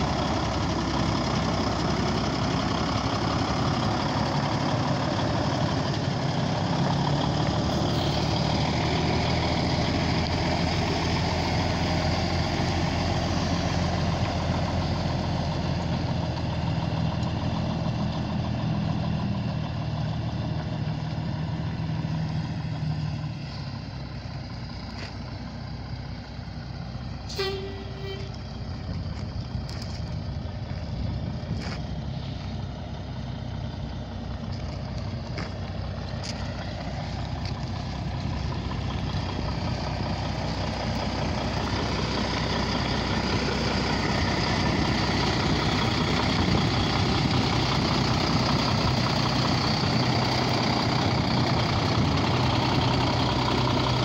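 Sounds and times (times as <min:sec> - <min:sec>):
diesel engine idling: 0:00.0 - 0:54.0.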